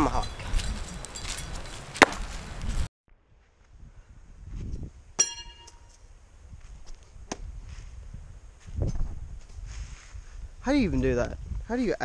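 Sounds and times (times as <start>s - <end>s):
tomahawk striking: 2.0s - 2.3s, 5.2s - 6.0s
steel ringing: 5.2s - 5.9s.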